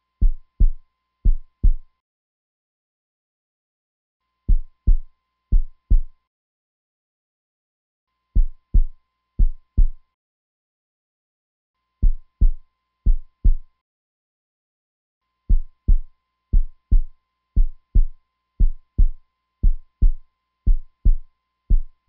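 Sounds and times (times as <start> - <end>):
heartbeat thumps: 0.2 - 1.8, 4.5 - 6.1, 8.4 - 10.0, 12.0 - 13.7, 15.5 - 22.0.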